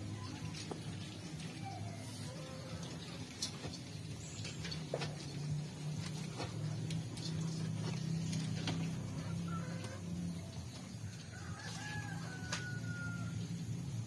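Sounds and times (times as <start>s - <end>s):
chickens clucking: 0.0s - 13.1s
rooster crowing: 11.0s - 13.8s.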